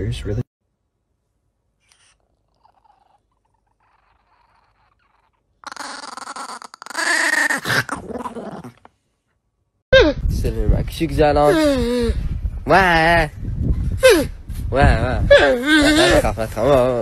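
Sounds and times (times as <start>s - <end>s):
small dog growling: 2.0s - 8.9s.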